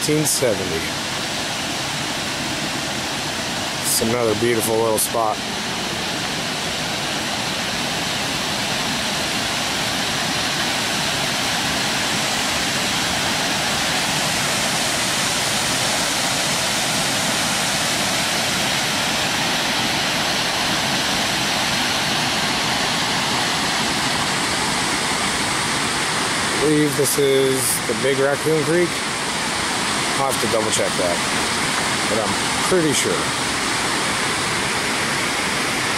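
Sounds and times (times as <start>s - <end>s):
water rushing over dam: 0.0s - 35.9s.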